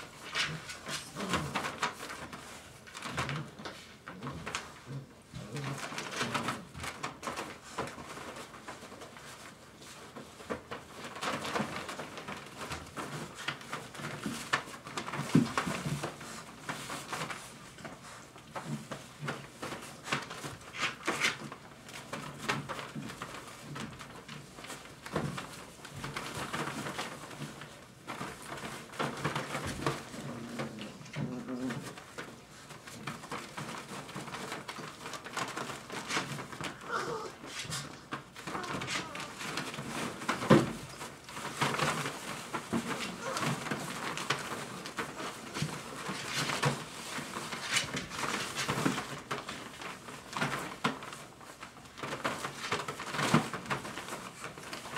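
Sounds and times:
puppies rustling in paper bedding: 0:00.0 - 0:54.9
puppy grunt or whine: 0:36.8 - 0:37.5.

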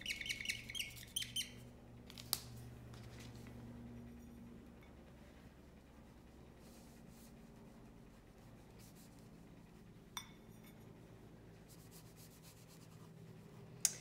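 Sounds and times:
brush strokes on plate: 0:05.2 - 0:10.8.

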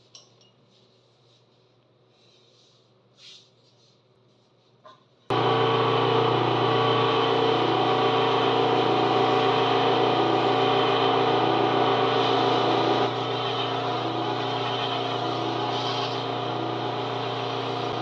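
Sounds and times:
lathe motor humming: 0:05.3 - 0:18.0.

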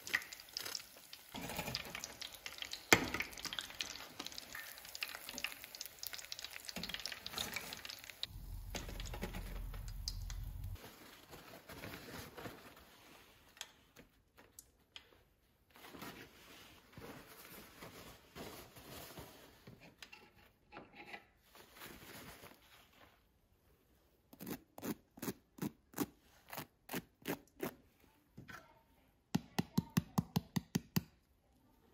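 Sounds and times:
hot oil sizzling and crackling: 0:00.0 - 0:10.8
low rumble: 0:08.3 - 0:10.8
paper towel rustling: 0:21.5 - 0:23.5.

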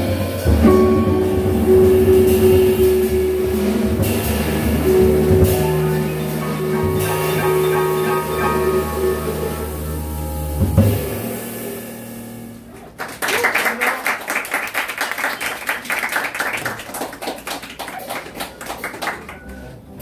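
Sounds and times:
jazz band last notes: 0:00.0 - 0:13.0
audience applauding: 0:12.7 - 0:19.8.

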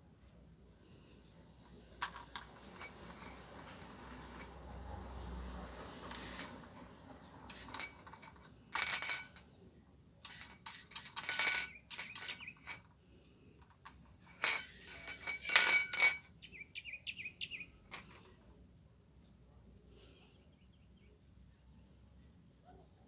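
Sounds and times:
spray can ball clinking: 0:06.1 - 0:06.6, 0:07.5 - 0:09.4, 0:10.2 - 0:12.8, 0:14.3 - 0:16.2.

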